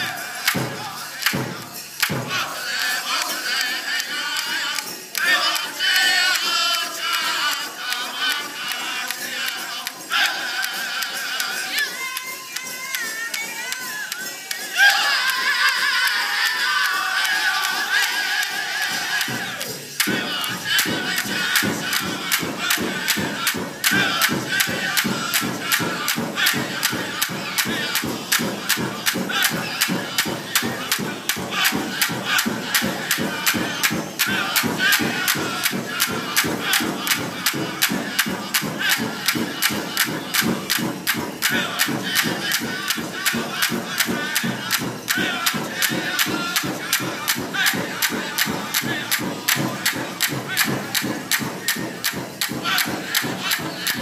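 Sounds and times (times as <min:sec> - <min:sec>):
steady big drum beat: 0:00.0 - 0:03.4, 0:14.5 - 0:54.0
high wavering voices singing: 0:00.0 - 0:54.0.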